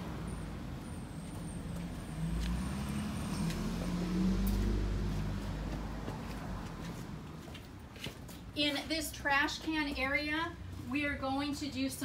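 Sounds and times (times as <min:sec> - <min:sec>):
vehicle engine hum: 0:00.0 - 0:07.9
footsteps on concrete: 0:01.2 - 0:02.7, 0:03.3 - 0:11.8.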